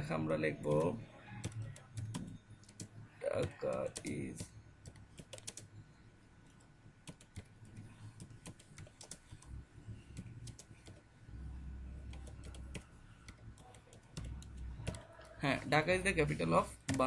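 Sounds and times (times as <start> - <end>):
keyboard typing: 0.0 - 15.4, 16.2 - 17.0
low hum: 9.4 - 15.3.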